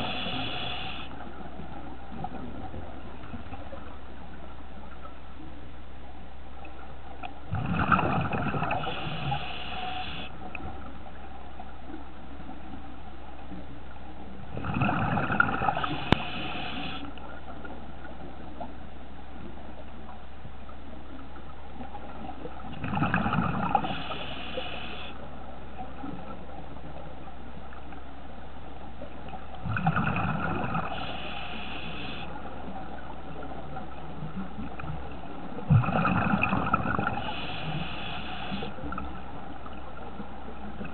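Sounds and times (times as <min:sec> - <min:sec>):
regulator breathing underwater: 0:00.0 - 0:01.2, 0:08.7 - 0:10.4, 0:15.6 - 0:17.1, 0:23.6 - 0:25.2, 0:30.7 - 0:32.3, 0:37.0 - 0:38.8
gurgling exhaled bubbles: 0:07.5 - 0:09.8, 0:14.5 - 0:17.0, 0:22.7 - 0:24.8, 0:29.6 - 0:32.2, 0:35.6 - 0:38.7.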